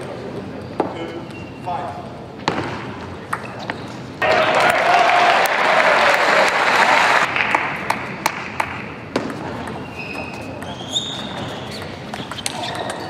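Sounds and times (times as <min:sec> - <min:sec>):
shoe squeak: 0:00.6 - 0:01.9, 0:03.4 - 0:04.1, 0:09.6 - 0:13.0
crowd applauding: 0:04.2 - 0:08.0.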